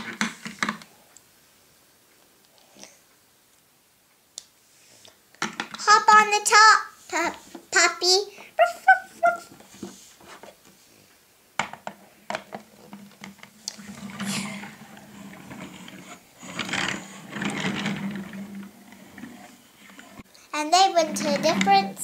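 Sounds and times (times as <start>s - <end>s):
toy wheels rolling on wooden table: 11.8s - 22.0s.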